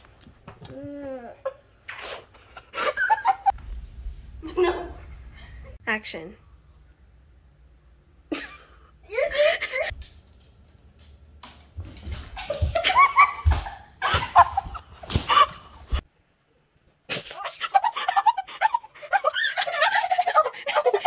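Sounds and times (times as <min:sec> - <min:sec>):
crutches thumping down stairs: 0:11.4 - 0:16.0.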